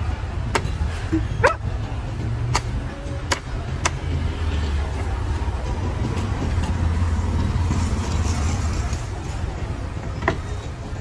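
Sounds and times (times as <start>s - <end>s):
low engine rumble: 0.0s - 11.0s
cleaver chopping coconut: 2.5s - 4.0s.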